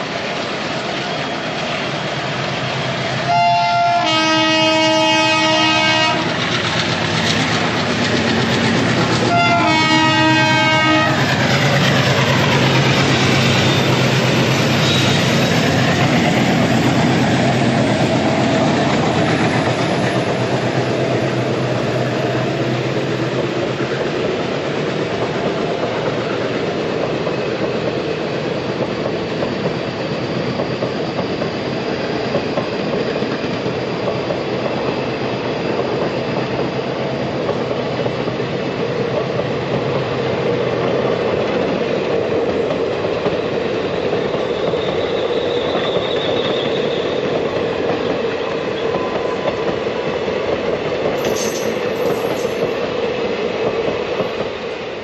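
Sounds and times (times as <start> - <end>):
train wheels roaring on rails: 0.0 - 55.0
clickety-clack over rail joints: 4.8 - 54.7
faint high squeal: 44.5 - 47.4, 51.2 - 52.7.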